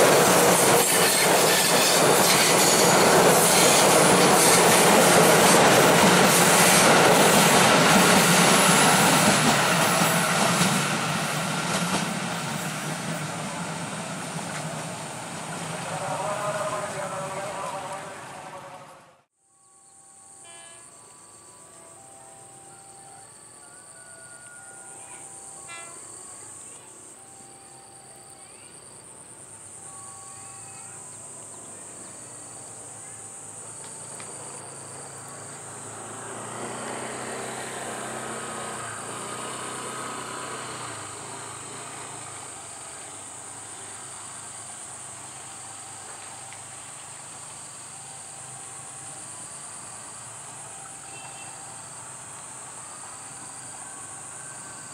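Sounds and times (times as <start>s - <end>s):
insects droning: 0.0s - 18.8s, 19.4s - 54.9s
electric train rumble: 0.0s - 19.3s, 20.0s - 54.9s
short repeated insect calls: 19.6s - 54.9s.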